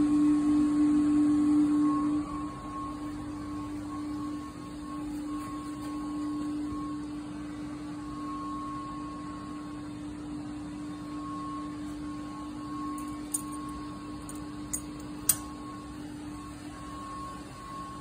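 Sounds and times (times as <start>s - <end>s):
electrical equipment humming: 8.8s - 18.0s.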